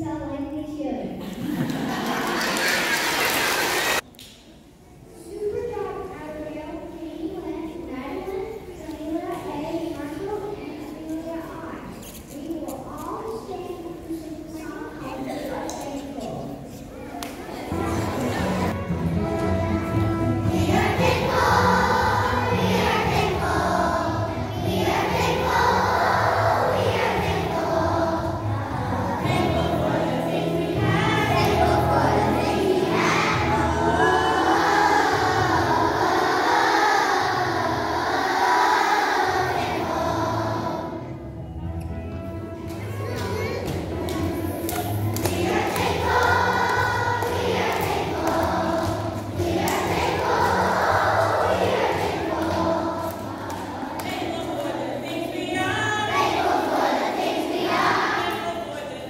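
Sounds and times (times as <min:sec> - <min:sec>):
musical accompaniment with bass: 0:17.8 - 0:25.7
children singing in unison: 0:20.4 - 0:41.1, 0:44.0 - 0:55.0, 0:56.0 - 0:58.6.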